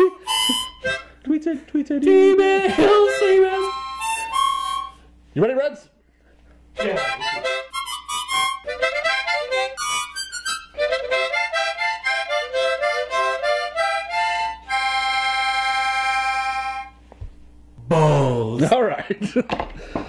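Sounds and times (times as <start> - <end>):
harmonica jingle: 0.0 - 1.4, 2.0 - 5.2, 6.7 - 17.0.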